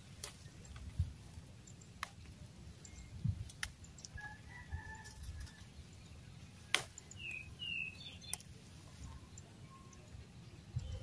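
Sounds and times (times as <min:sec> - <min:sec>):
distant rooster crowing: 0:04.2 - 0:05.7
small bird chirping: 0:04.9 - 0:11.0
plant stems snapping: 0:06.7 - 0:07.0.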